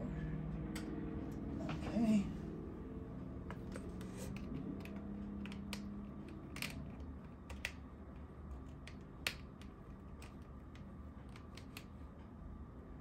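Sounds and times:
low steady hum: 0.0 - 13.0
keyboard and mouse clicks: 3.5 - 12.2.

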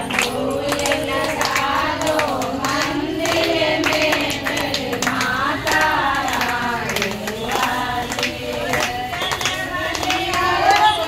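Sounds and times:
hand claps: 0.0 - 11.0
woman singing into a microphone: 4.3 - 11.0.

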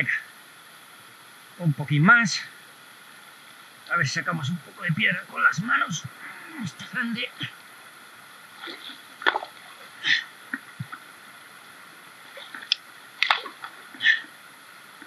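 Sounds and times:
river rushing: 8.0 - 15.0
water sloshing: 8.5 - 11.2, 12.3 - 14.4.

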